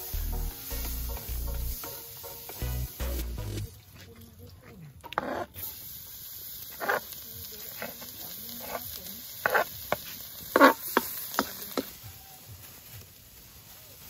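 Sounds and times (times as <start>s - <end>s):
spatula scraping and knocking wok: 0.0s - 3.7s, 5.0s - 5.8s, 6.6s - 12.0s
garlic sizzling in hot oil: 0.0s - 4.0s, 5.0s - 14.0s.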